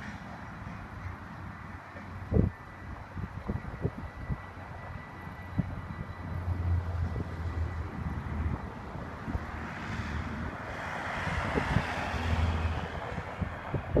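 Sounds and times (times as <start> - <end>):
wind buffeting microphone: 0.0 - 14.0
van driving past: 6.1 - 14.0.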